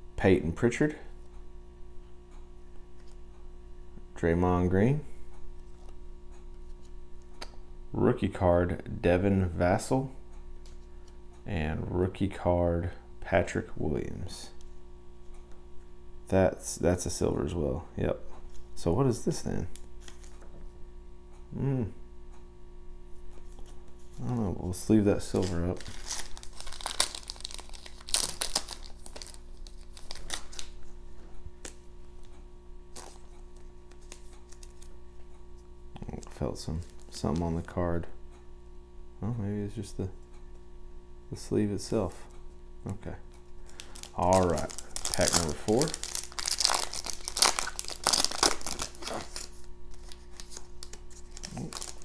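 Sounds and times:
plastic card sleeve crinkling: 0:19.7 - 0:20.4, 0:23.4 - 0:32.3, 0:32.9 - 0:35.0, 0:36.1 - 0:37.8, 0:43.6 - 0:52.0.

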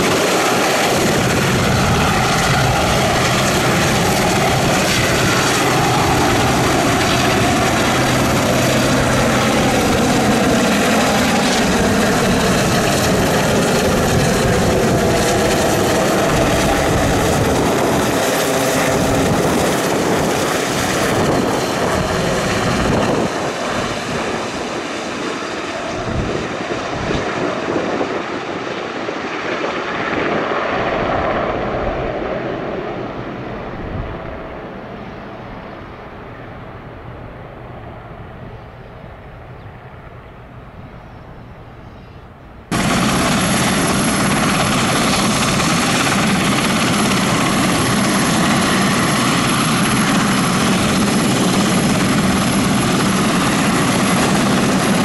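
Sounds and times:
helicopter passing overhead: 0:00.0 - 0:55.0.

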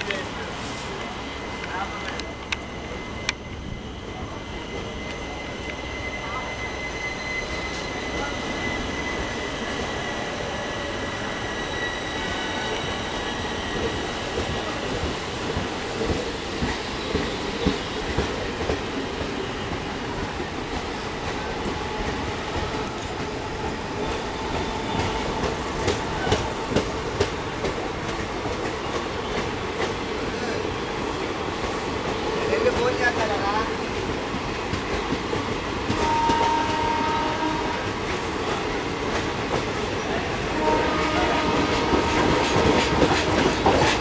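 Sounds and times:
train wheels rumbling on rails: 0:00.0 - 0:44.0
wheel squeal: 0:02.9 - 0:13.9.

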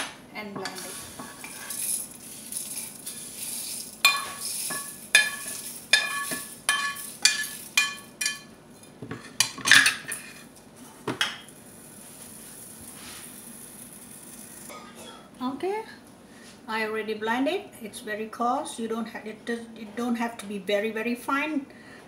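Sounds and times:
metal spoon clinking on pan: 0:00.6 - 0:08.5
pan clattering on stovetop: 0:04.0 - 0:10.3.

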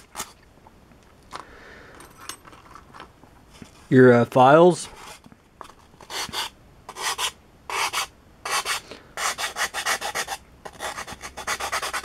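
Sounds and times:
metal file rasping on foam: 0:06.0 - 0:12.0.

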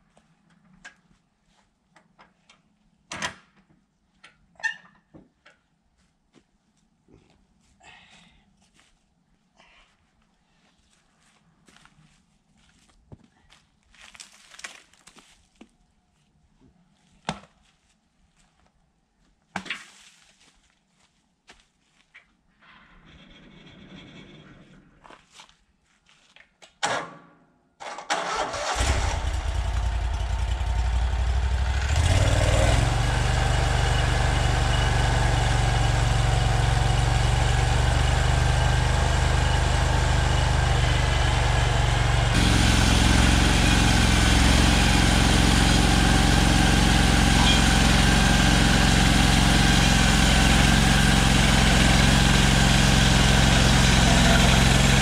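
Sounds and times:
gasoline engine starting and running: 0:28.0 - 0:55.0.

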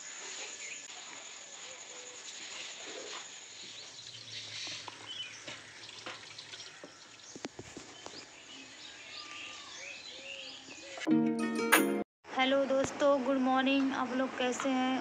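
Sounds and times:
small birds chirping: 0:01.6 - 0:11.1.

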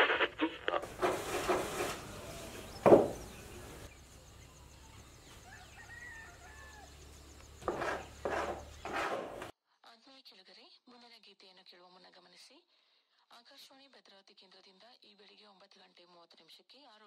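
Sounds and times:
faint bird chirps: 0:01.9 - 0:08.9.

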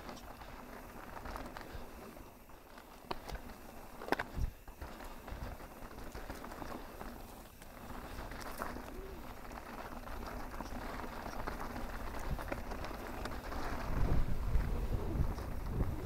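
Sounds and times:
small clicks and rattles: 0:00.0 - 0:16.0
tyres crunching over dirt: 0:00.0 - 0:16.0.

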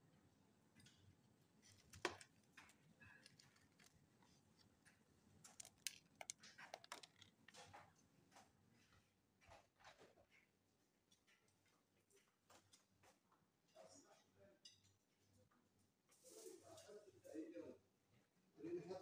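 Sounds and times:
faint handling clicks and rustles: 0:00.8 - 0:10.4.

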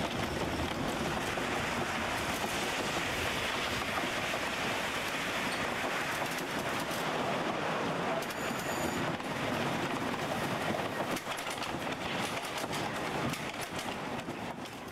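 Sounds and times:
roller coaster wheels clattering: 0:00.0 - 0:14.9.

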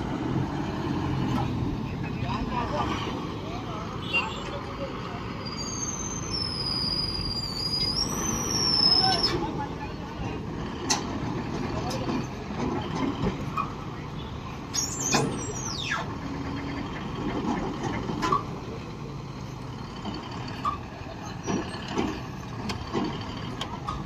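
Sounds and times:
heavy diesel engine running: 0:00.0 - 0:24.0
high squeal falling in pitch: 0:05.5 - 0:09.4.

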